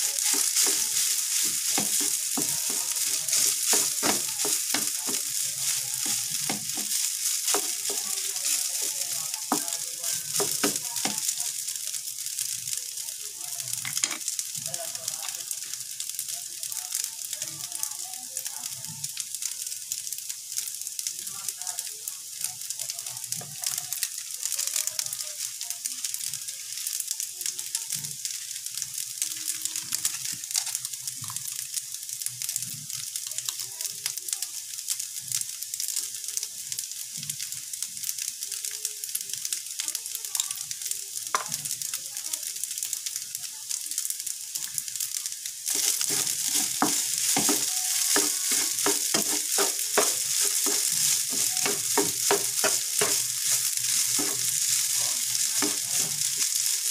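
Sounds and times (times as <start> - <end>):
spatula scraping a pan: 0.0 - 11.3, 45.7 - 56.9
rice sizzling in a frying pan: 0.0 - 56.9.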